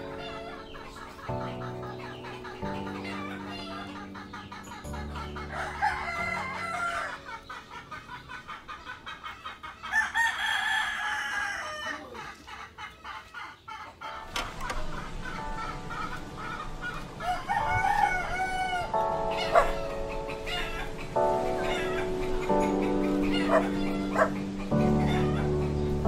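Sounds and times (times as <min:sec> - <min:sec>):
rooster crowing: 0:05.3 - 0:07.4, 0:09.8 - 0:12.2, 0:14.9 - 0:21.0, 0:22.8 - 0:25.9.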